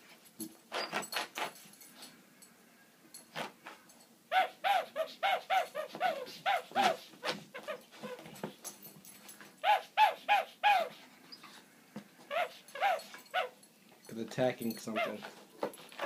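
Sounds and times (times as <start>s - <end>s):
small dog yipping: 4.3s - 8.3s, 9.6s - 11.0s, 12.3s - 13.6s.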